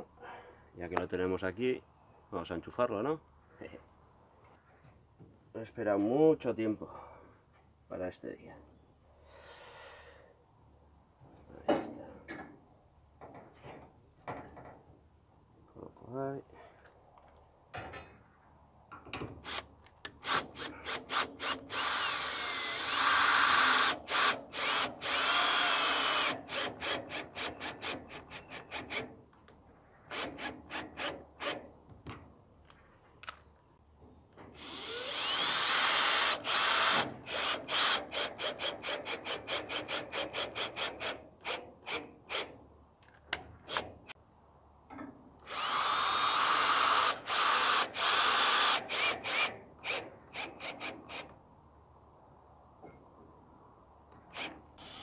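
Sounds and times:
cordless drill driving screws: 0:19.4 - 0:29.1, 0:30.1 - 0:31.6, 0:34.6 - 0:42.6, 0:43.7 - 0:43.9, 0:45.4 - 0:51.3.

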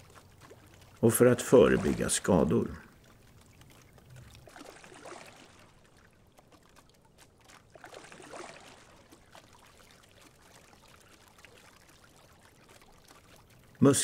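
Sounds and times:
oars splashing in water: 0:00.0 - 0:13.8.

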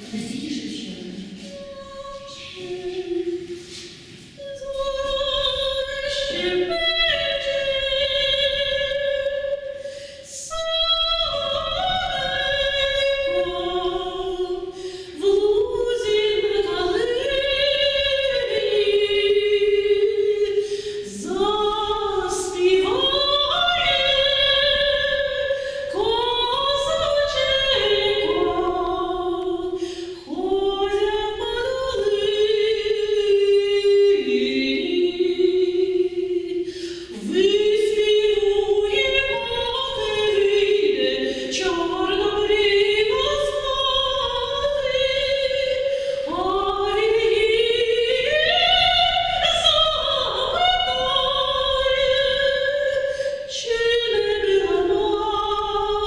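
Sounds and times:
vocal ensemble singing folk song: 0:00.0 - 0:56.0.

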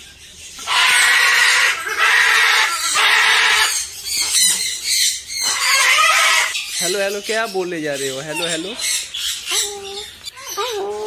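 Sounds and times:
cockatoo screeching: 0:00.6 - 0:03.9, 0:05.3 - 0:07.0.

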